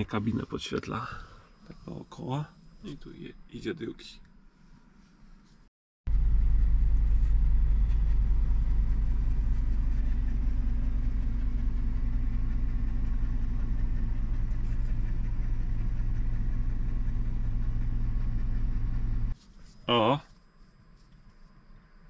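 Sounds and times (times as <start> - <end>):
diesel engine idling: 6.1 - 19.4.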